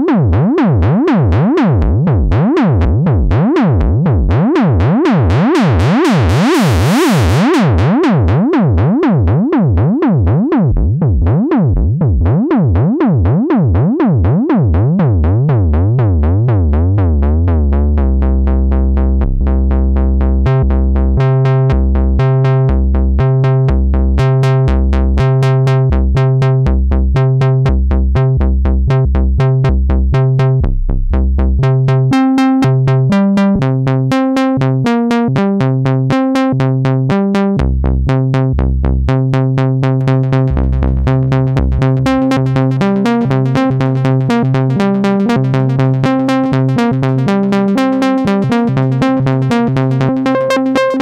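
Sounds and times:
analog synthesizer notes: 0:00.0 - 0:51.0.

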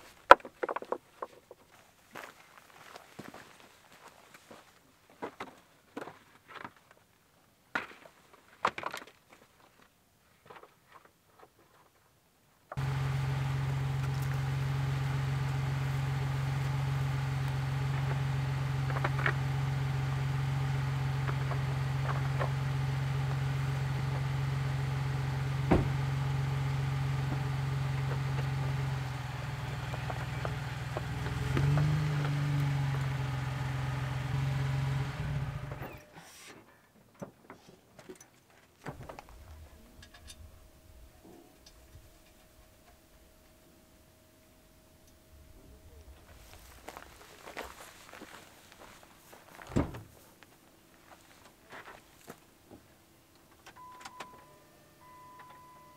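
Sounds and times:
car engine running: 0:12.7 - 0:36.1, 0:44.7 - 0:50.0.

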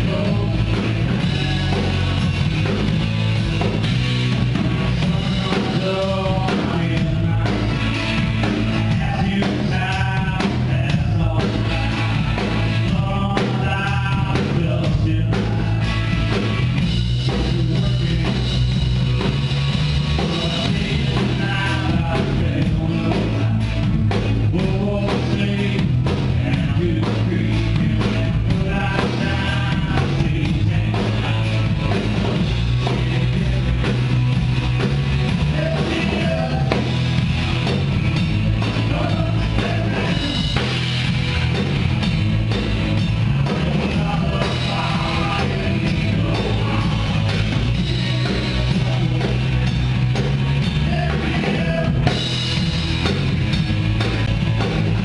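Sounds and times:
person singing: 0:00.0 - 0:02.2, 0:05.0 - 0:16.4, 0:17.3 - 0:18.7, 0:20.1 - 0:23.8, 0:24.5 - 0:34.0, 0:35.3 - 0:37.0, 0:38.8 - 0:40.7, 0:43.4 - 0:49.8, 0:50.7 - 0:52.2
live rock band playing: 0:00.0 - 0:55.0.

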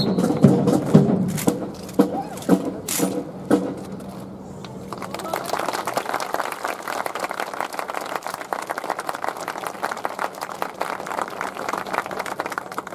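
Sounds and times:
audience applauding: 0:04.9 - 0:12.9.

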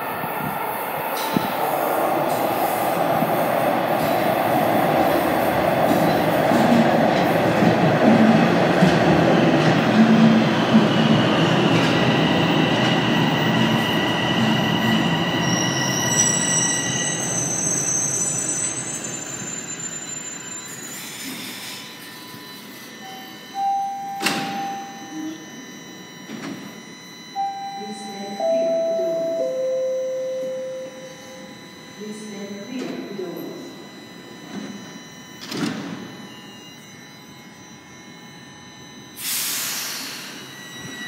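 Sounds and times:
train wheels rushing on rails: 0:00.0 - 0:15.2
brake and wheel squeals: 0:12.0 - 0:23.0
short tone: 0:15.4 - 0:41.0
train doors opening thump: 0:24.2 - 0:24.8, 0:35.4 - 0:36.1.

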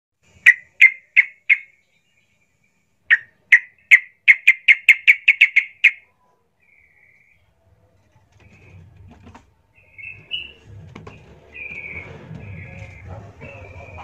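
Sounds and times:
bulbul calling: 0:00.3 - 0:02.2, 0:03.1 - 0:07.4, 0:09.8 - 0:14.0.

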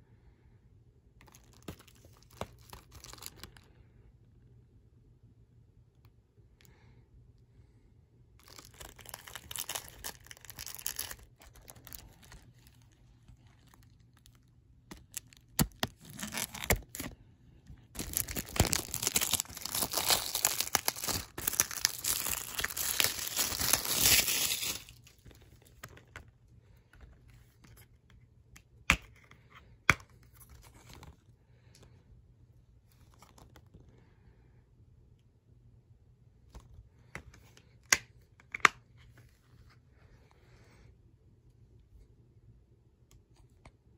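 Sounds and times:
shrink wrap tearing and crinkling: 0:01.2 - 0:03.7, 0:08.4 - 0:17.2, 0:17.8 - 0:26.2.

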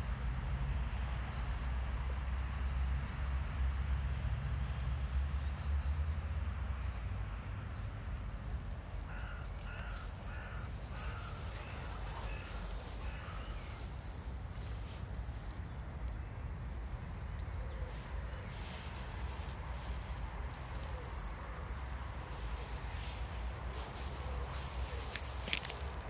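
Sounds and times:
bird calling: 0:08.9 - 0:26.0.

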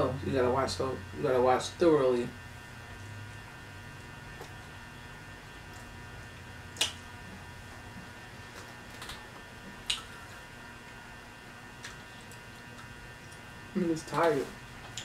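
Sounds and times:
faint electrical hum: 0:00.0 - 0:15.0
chewing with mouth smacks: 0:09.8 - 0:10.3.

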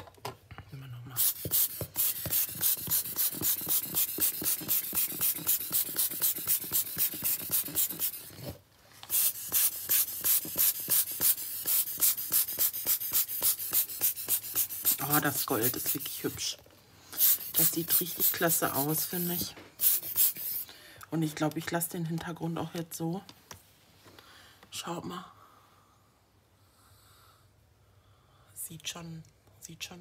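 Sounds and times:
scratchy taps on paper: 0:01.4 - 0:08.2.

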